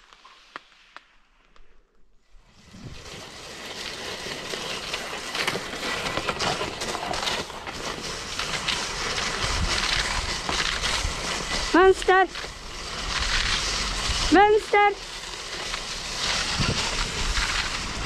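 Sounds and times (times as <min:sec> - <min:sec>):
sled rattling: 0:02.4 - 0:18.0
sled runners scraping on snow: 0:02.4 - 0:18.0
wind on microphone: 0:16.3 - 0:18.0.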